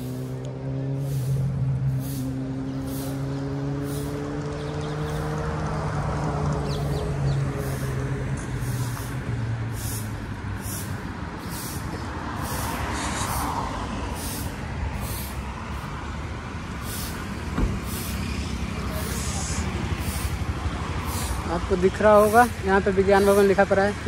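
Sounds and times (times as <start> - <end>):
traffic rumble: 0.0 - 24.0
vehicle engine hum: 0.0 - 24.0
vehicle passing: 0.0 - 24.0.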